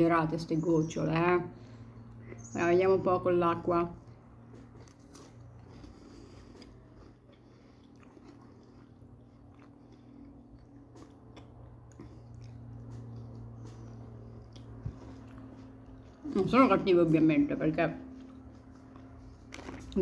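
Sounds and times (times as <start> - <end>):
steady low hum: 0.0 - 20.0
small crunches and mouth clicks: 4.0 - 16.2, 18.2 - 20.0
faint chewing of biscuit: 4.0 - 16.4, 18.1 - 20.0.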